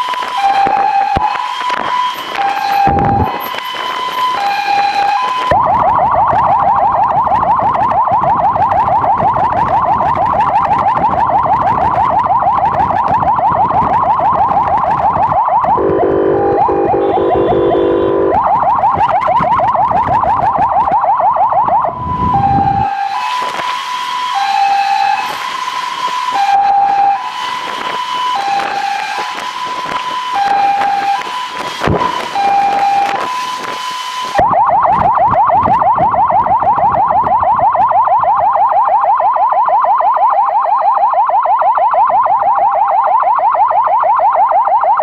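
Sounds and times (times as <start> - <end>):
emergency siren: 0.0 - 45.0
low steady horn tone: 15.7 - 18.4.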